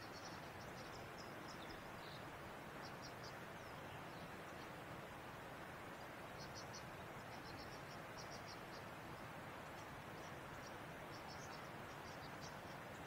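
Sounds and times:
insects chirping faintly: 0.0s - 13.0s
low outdoor background hiss: 0.0s - 13.0s.

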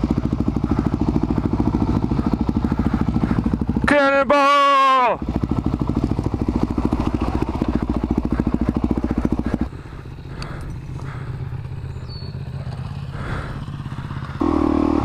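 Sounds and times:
distant motorcycle engine: 0.0s - 15.0s
motorcycle engine running close: 0.0s - 15.0s.

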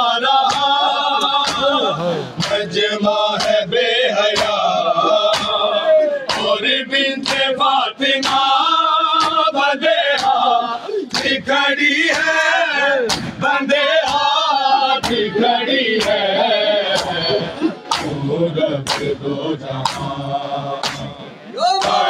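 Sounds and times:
men chanting in chorus: 0.0s - 22.0s
hands slapping chests: 2.4s - 2.7s, 3.4s - 3.7s, 5.3s - 5.7s, 7.2s - 7.5s, 8.2s - 8.5s, 10.1s - 10.4s, 11.1s - 11.4s, 16.0s - 16.2s, 17.9s - 18.2s, 18.9s - 19.1s, 19.8s - 20.1s, 20.8s - 21.1s.

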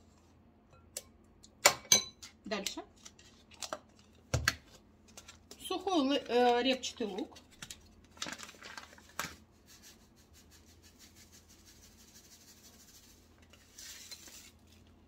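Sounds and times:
sachet rustling: 6.1s - 9.8s
flakes pattering into bowl: 10.7s - 14.9s.

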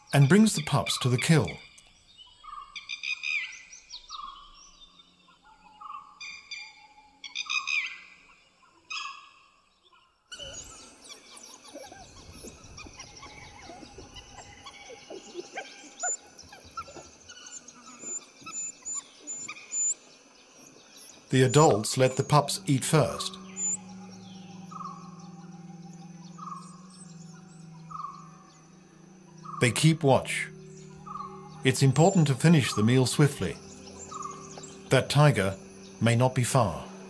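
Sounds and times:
birds chirping: 0.0s - 37.0s
dhole whistle calls: 21.1s - 37.0s
steady high tone: 21.3s - 37.0s.

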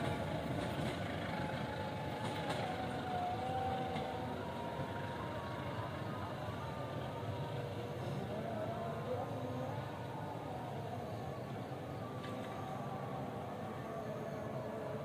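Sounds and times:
train wheels rumbling on track: 0.0s - 9.2s.

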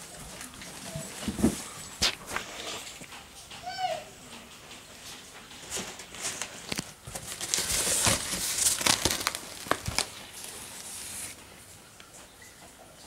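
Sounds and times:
cardboard rustling and crinkling: 0.0s - 3.2s, 5.1s - 11.7s.

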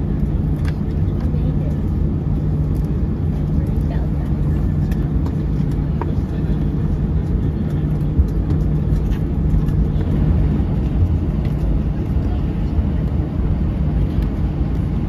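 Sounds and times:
engine and wheel rumble: 0.0s - 15.0s.

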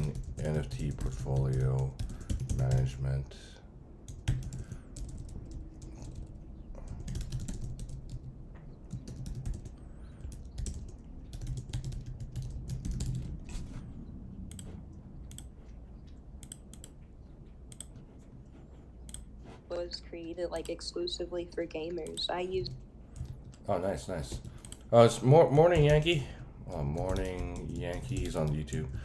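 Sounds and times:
typing on keyboard: 0.0s - 3.0s, 4.1s - 13.7s, 14.5s - 17.0s, 25.6s - 29.0s
low steady hum: 0.0s - 29.0s.

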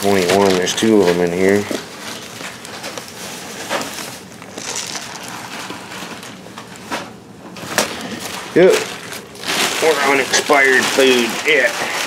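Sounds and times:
cardboard canister rustling and scraping: 0.0s - 7.1s.

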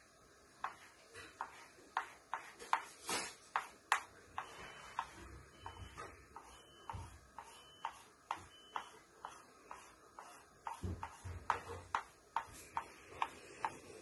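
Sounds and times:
crayon strokes on paper: 6.4s - 13.8s.

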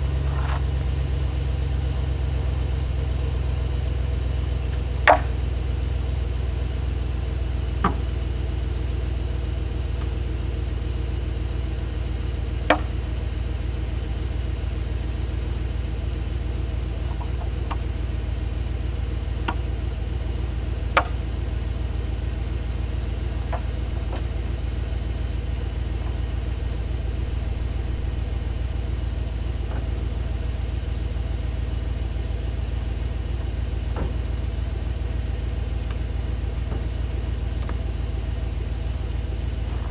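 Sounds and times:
truck engine idling: 0.0s - 39.9s
gear knocking and clicking: 19.2s - 19.9s.

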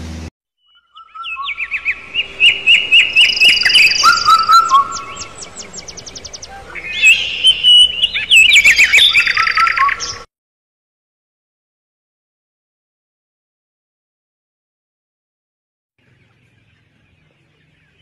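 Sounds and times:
chicks peeping: 1.2s - 10.2s.

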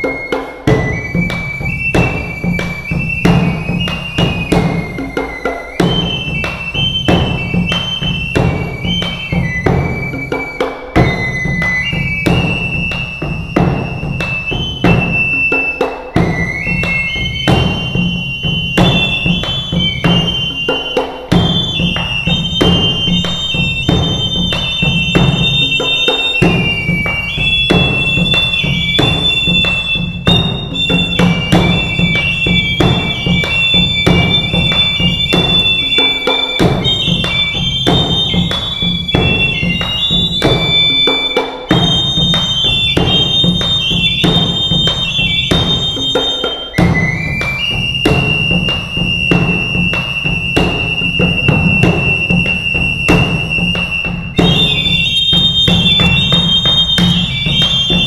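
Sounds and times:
high-pitched flutes melody: 0.0s - 58.0s
large drum beaten with sticks: 0.0s - 58.0s.

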